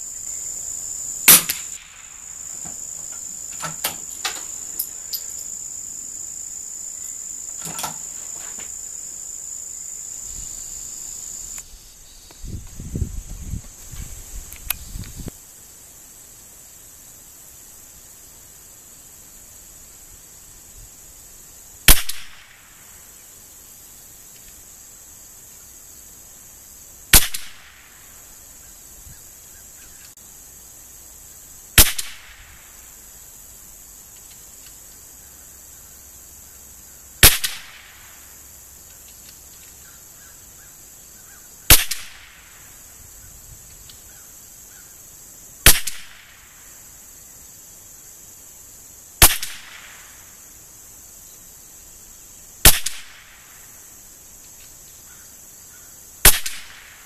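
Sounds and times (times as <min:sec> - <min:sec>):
rifle shots: 0:01.3 - 0:02.1, 0:21.9 - 0:22.5, 0:31.8 - 0:32.4, 0:37.2 - 0:37.8, 0:41.7 - 0:42.2, 0:49.2 - 0:49.8, 0:52.7 - 0:53.2.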